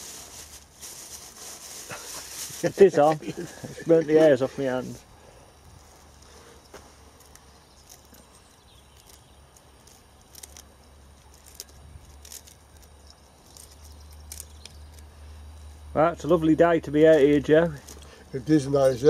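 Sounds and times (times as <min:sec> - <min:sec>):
low steady hum: 0:00.0 - 0:19.0
broccoli stems snapping: 0:07.1 - 0:15.1.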